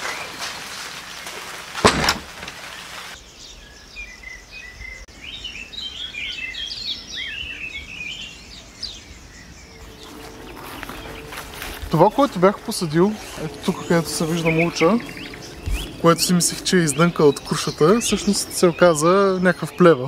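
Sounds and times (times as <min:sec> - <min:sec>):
heavy rain hiss: 0:00.0 - 0:03.2
small birds chirping and trilling: 0:00.0 - 0:20.0
loud knock: 0:01.8 - 0:02.5.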